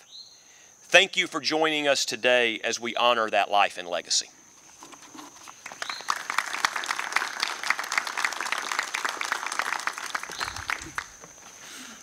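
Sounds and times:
audience applauding: 0:05.6 - 0:11.4.

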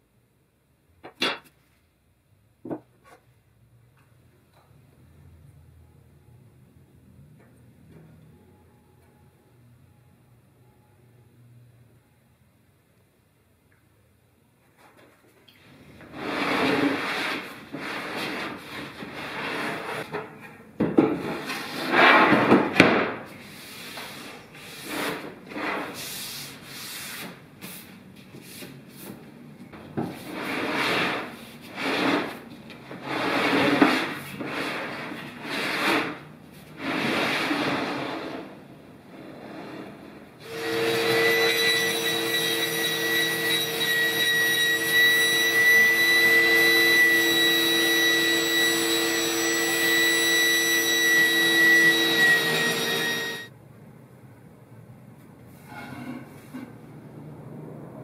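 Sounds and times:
wooden sled sliding on saw table: 0:16.0 - 0:20.3, 0:21.2 - 0:22.8, 0:23.4 - 0:27.3, 0:30.0 - 0:41.8, 0:46.2 - 0:53.5
table saw motor whine: 0:40.4 - 0:53.5.

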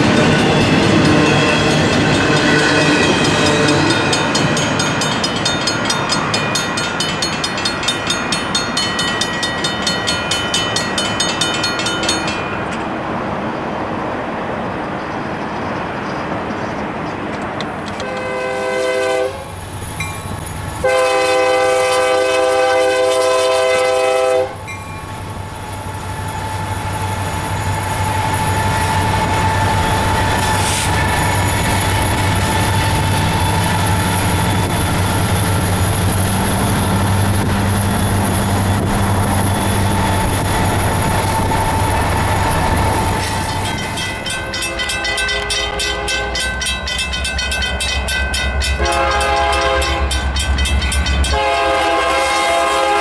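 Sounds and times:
freight train engine rumble: 0:00.0 - 0:53.0
train wheels on rail: 0:00.0 - 0:53.0
locomotive air horn: 0:00.9 - 0:04.1, 0:18.0 - 0:19.6, 0:20.8 - 0:24.6, 0:44.5 - 0:46.4, 0:48.8 - 0:50.2, 0:51.2 - 0:53.0.

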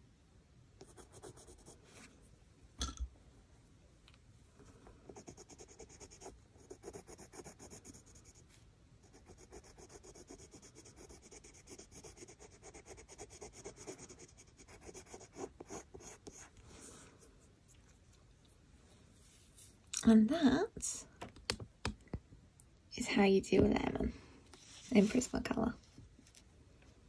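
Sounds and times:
pencil scratching on paper: 0:00.8 - 0:01.8, 0:05.1 - 0:08.4, 0:09.0 - 0:16.5.

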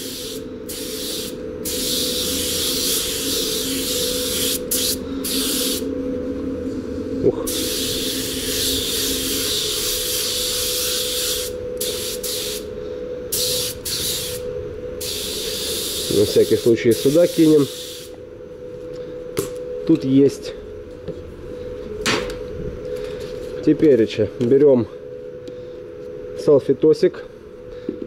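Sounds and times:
spray gun hissing: 0:00.0 - 0:05.8, 0:07.5 - 0:12.6, 0:13.3 - 0:14.4, 0:15.0 - 0:18.2
steady hum: 0:00.0 - 0:28.0.

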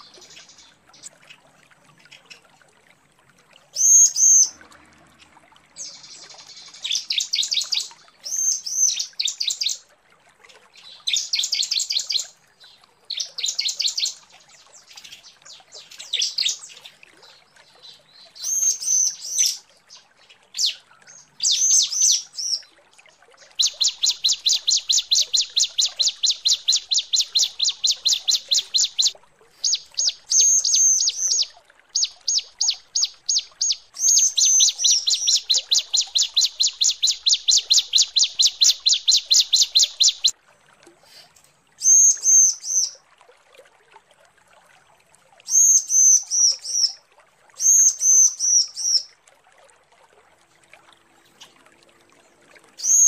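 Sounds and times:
bird chirping rapidly: 0:23.6 - 0:40.3.

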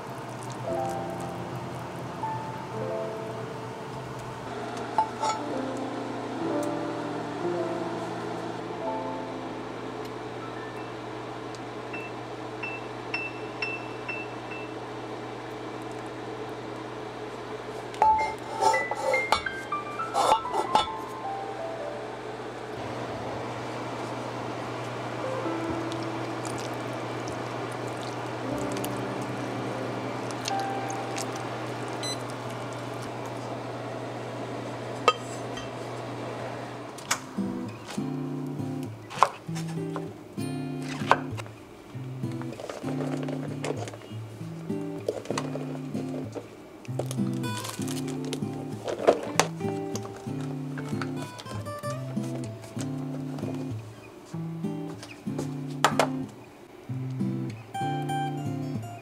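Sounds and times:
low hum and hiss: 0:00.0 - 0:59.0
metal lid clink: 0:05.0 - 0:05.5, 0:20.2 - 0:21.0
low hum: 0:21.1 - 0:37.8
thick liquid bubbling in a pot: 0:25.8 - 0:29.4.

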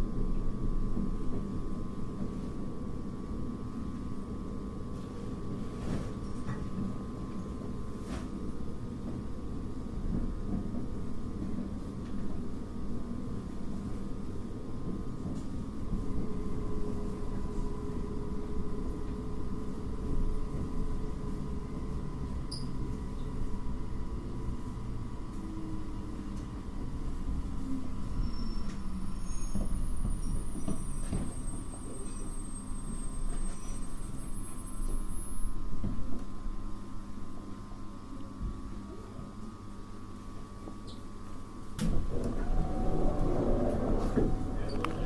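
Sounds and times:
train running rumble: 0:00.0 - 0:32.2, 0:41.8 - 0:45.0
train motor whine falling: 0:41.8 - 0:45.0.

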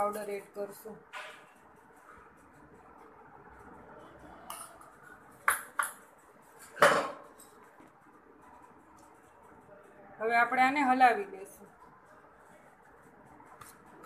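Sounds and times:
metal spoon clinking on steel bowl: 0:04.5 - 0:06.0.

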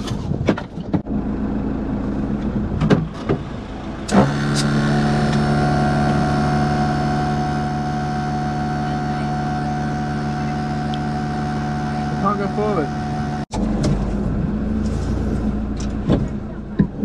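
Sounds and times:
engine idling: 0:01.0 - 0:17.0
engine knocks: 0:02.4 - 0:06.5, 0:12.0 - 0:17.0
air compressor humming: 0:03.8 - 0:13.5.

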